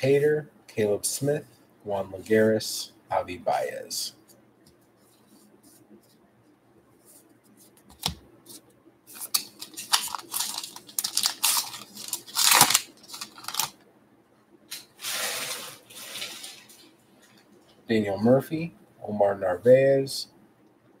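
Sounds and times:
wrapper tearing and crinkling: 9.2 - 13.8, 15.0 - 16.9.

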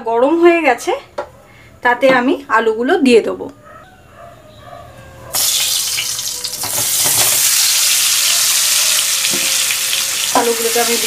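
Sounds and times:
potatoes sizzling in hot oil: 5.4 - 11.0.

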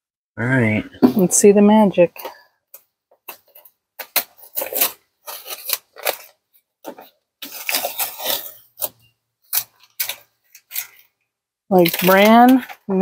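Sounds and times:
tape peeling and crumpling: 3.3 - 12.9.

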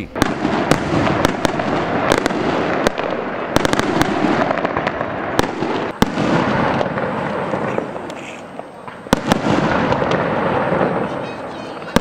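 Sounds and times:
fireworks bangs: 0.0 - 12.0
fireworks crackling: 0.0 - 12.0.

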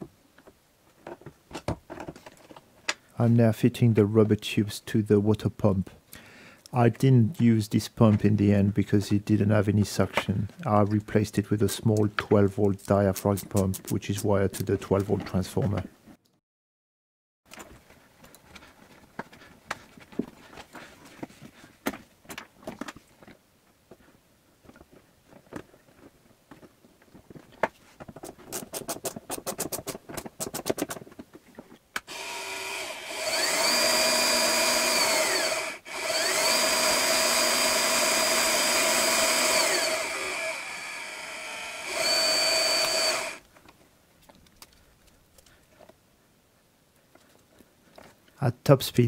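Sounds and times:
quick run of clicks: 28.2 - 31.0
small motor whining: 32.1 - 43.4.

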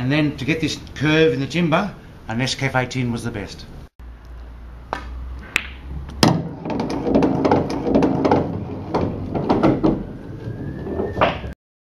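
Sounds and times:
pool cue striking ball: 5.5 - 10.0
billiard balls clacking: 5.5 - 11.6
billiard balls rattling on table: 6.1 - 11.6.

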